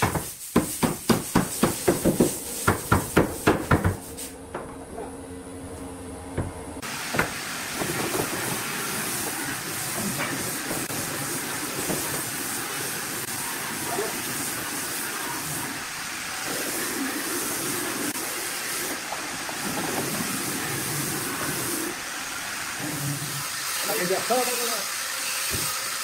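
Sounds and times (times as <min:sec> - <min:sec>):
steady hiss: 0:06.8 - 0:26.0.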